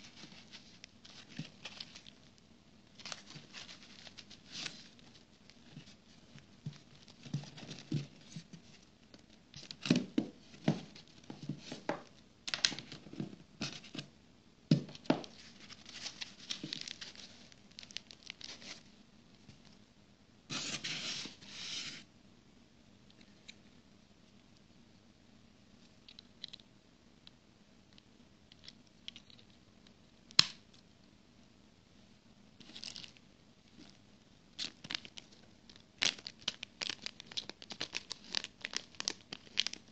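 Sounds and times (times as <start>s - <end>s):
packaging rustling and tearing: 0.0s - 2.2s, 3.0s - 6.0s, 14.9s - 18.9s, 32.6s - 33.2s, 34.6s - 39.9s.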